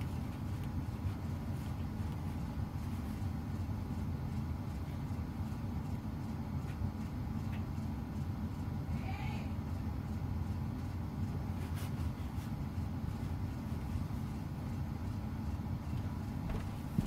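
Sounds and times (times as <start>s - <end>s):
laundry machine rumbling: 0.0s - 17.0s.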